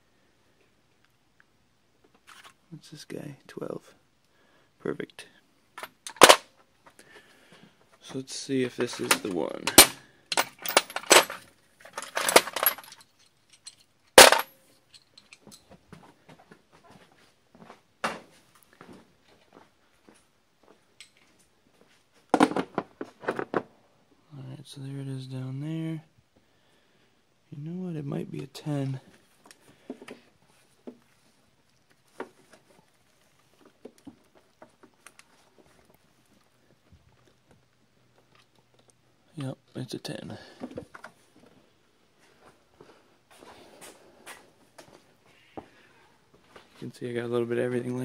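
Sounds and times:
metal sockets clinking in a drawer: 0:08.7 - 0:15.6.

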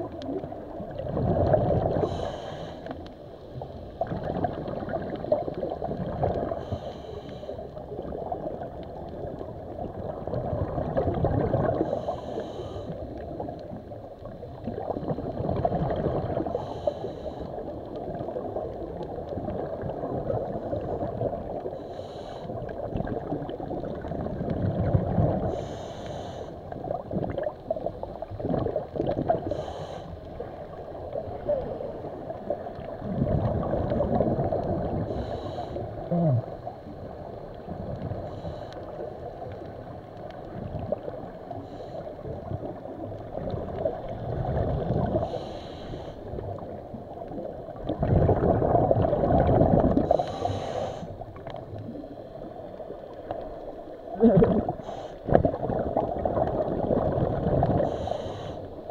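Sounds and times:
muffled underwater noise: 0:00.0 - 0:58.9
breathing through a snorkel: 0:01.9 - 0:03.1, 0:06.5 - 0:07.8, 0:11.7 - 0:13.2, 0:16.5 - 0:17.7, 0:21.7 - 0:22.7, 0:25.4 - 0:26.7, 0:29.4 - 0:30.5, 0:35.0 - 0:36.4, 0:38.2 - 0:39.1, 0:41.6 - 0:42.3, 0:45.1 - 0:46.4, 0:50.0 - 0:51.4, 0:54.6 - 0:55.4, 0:57.8 - 0:58.9
bubble bursts: 0:54.2 - 0:54.8.

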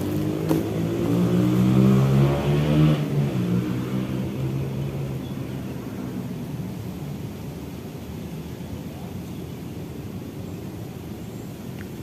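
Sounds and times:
vehicle engine passing by: 0:00.0 - 0:05.6.

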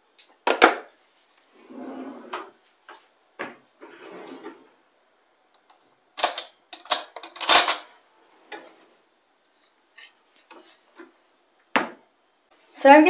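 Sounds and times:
kitchen utensils and dishes clattering: 0:06.2 - 0:08.8.

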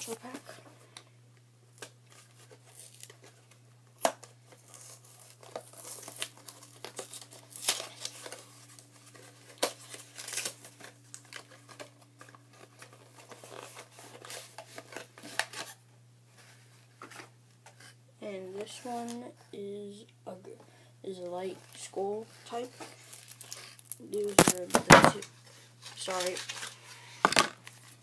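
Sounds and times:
packaging tearing and crinkling: 0:01.7 - 0:15.8, 0:22.8 - 0:25.0, 0:25.8 - 0:26.8.

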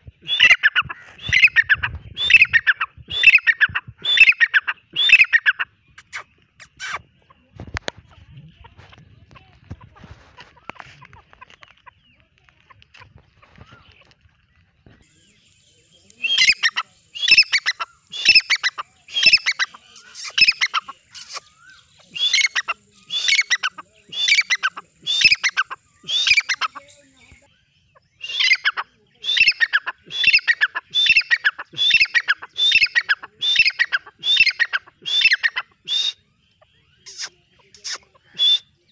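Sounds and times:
francolin calling: 0:00.0 - 0:07.5, 0:15.0 - 0:38.9.

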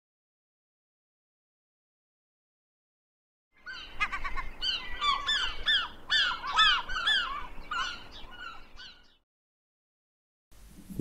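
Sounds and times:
birds calling: 0:03.6 - 0:09.2.

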